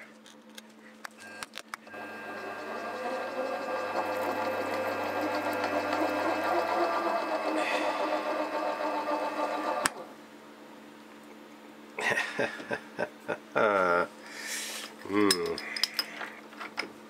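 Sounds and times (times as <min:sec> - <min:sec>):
milling machine motor whine: 0:01.2 - 0:10.1.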